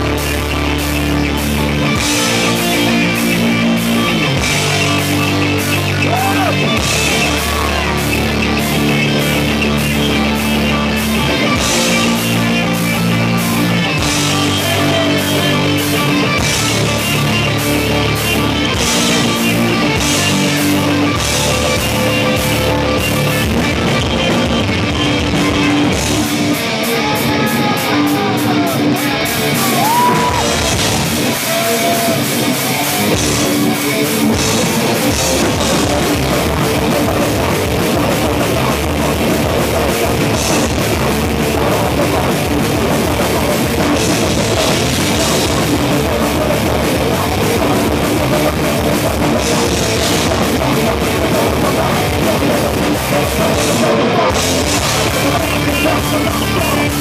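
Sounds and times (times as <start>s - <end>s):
bass and kick drum: 0.0s - 26.4s, 34.3s - 57.0s
distorted electric guitar: 0.0s - 57.0s
drum kit: 0.0s - 57.0s.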